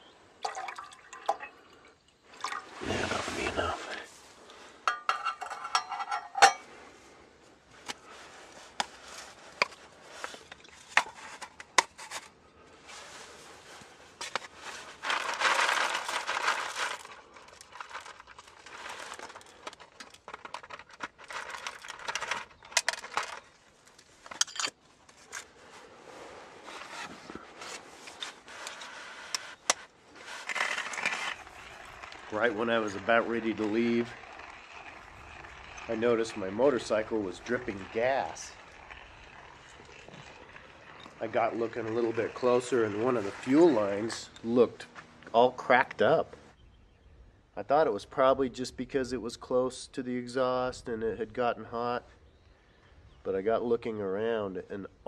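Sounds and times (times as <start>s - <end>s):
coffee beans rattling: 14.3s - 23.5s, 28.4s - 44.3s
hand grinder crunching beans: 14.5s - 23.4s, 28.4s - 44.4s.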